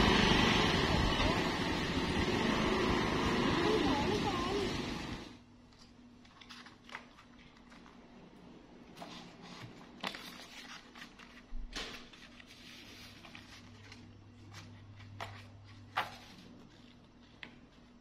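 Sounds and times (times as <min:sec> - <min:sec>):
paper pages rustling and flipping: 0:05.7 - 0:08.3, 0:08.9 - 0:18.0.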